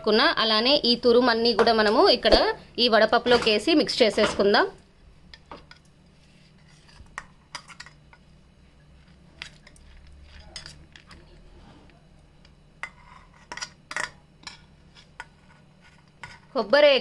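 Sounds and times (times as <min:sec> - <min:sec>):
utensil scraping against bowl: 0:05.6 - 0:08.2, 0:12.8 - 0:13.8, 0:14.4 - 0:16.6.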